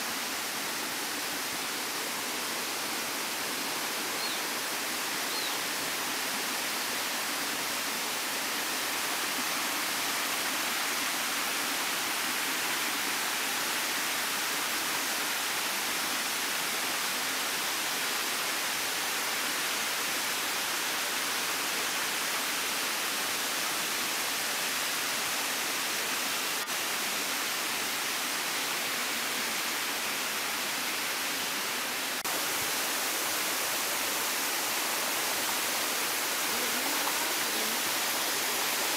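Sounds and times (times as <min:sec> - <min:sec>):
small waterfall rushing: 0:00.0 - 0:38.9
stream running over rock: 0:00.0 - 0:38.9.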